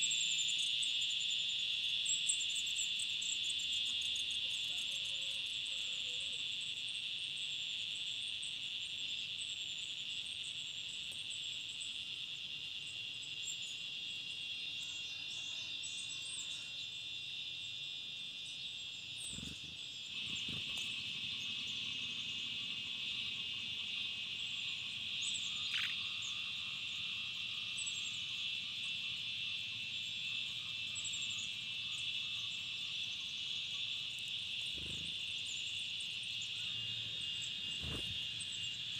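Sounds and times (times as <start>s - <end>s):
high-pitched insect chorus: 0.0s - 38.9s
faint high chirps: 25.2s - 26.4s.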